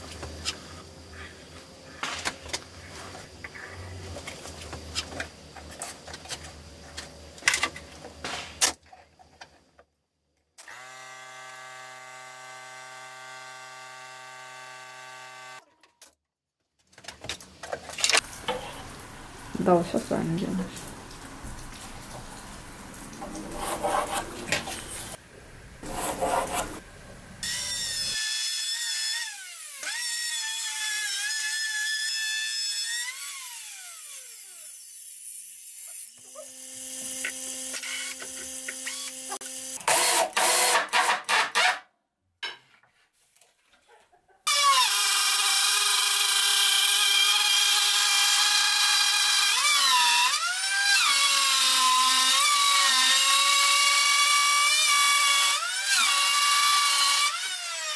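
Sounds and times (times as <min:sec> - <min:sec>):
cordless drill whining: 0:10.6 - 0:15.6
router whining: 0:10.6 - 0:15.6, 0:36.2 - 0:41.7.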